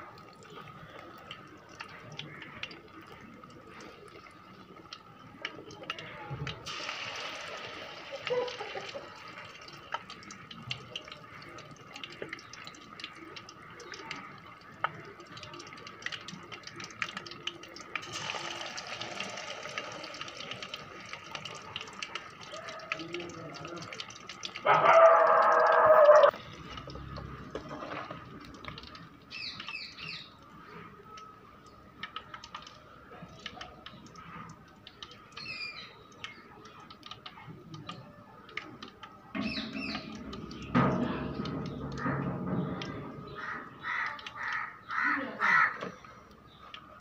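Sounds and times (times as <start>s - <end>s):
fish deep-frying in oil: 0.0s - 47.0s
caw-like bird calls: 43.3s - 46.1s.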